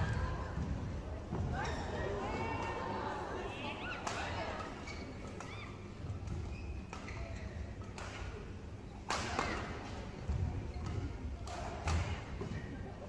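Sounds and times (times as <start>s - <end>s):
low arena hum: 0.0s - 13.0s
badminton racket hitting shuttlecock: 10.8s - 12.4s.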